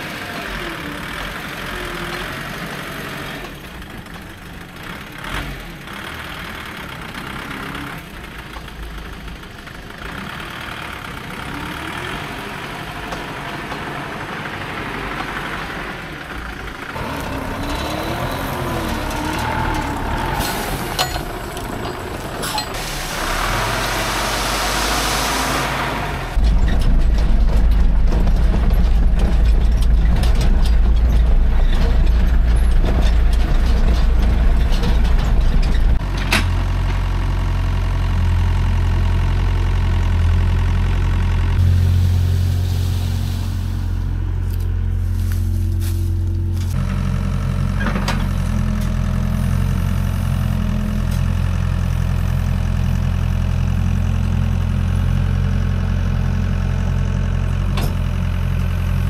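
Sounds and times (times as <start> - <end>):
truck engine rumbling: 0.0 - 59.0.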